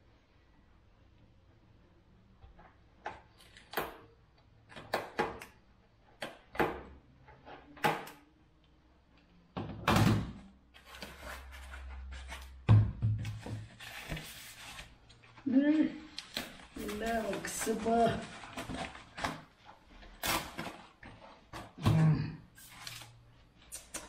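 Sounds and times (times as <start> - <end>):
plastic wrap crinkling: 13.8 - 21.5.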